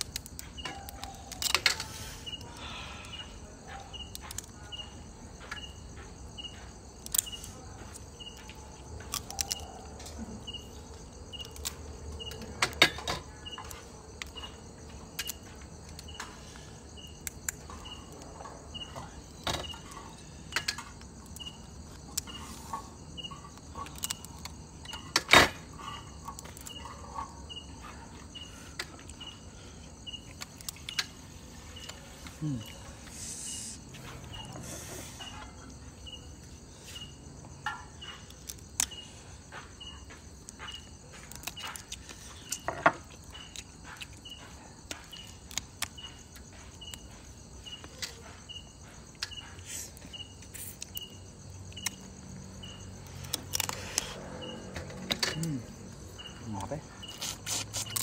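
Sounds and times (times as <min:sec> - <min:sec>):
crab shell cracking: 0:00.0 - 0:01.9, 0:09.0 - 0:09.8, 0:53.2 - 0:54.0
cricket chirping: 0:00.0 - 0:58.0.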